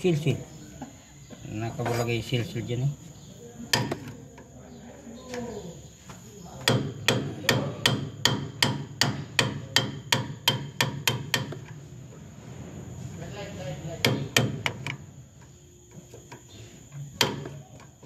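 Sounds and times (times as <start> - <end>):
hammer striking steel chisel: 6.6 - 11.6, 14.0 - 15.0, 17.1 - 17.6.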